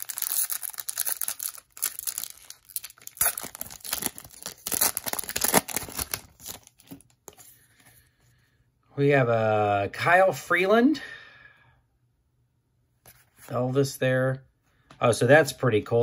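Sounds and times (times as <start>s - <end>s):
foil wrapper tearing and crinkling: 0.0s - 7.1s.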